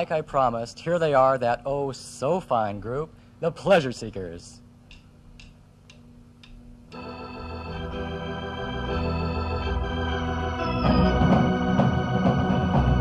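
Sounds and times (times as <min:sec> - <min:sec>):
held organ chord: 0:06.9 - 0:13.0
rock band playing: 0:07.0 - 0:13.0.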